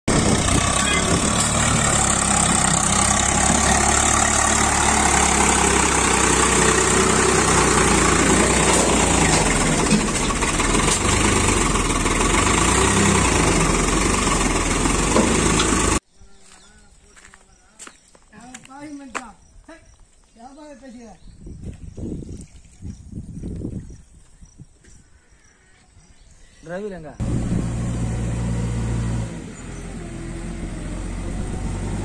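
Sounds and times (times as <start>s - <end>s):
tractor diesel engine running: 0.1s - 16.0s, 27.2s - 32.0s.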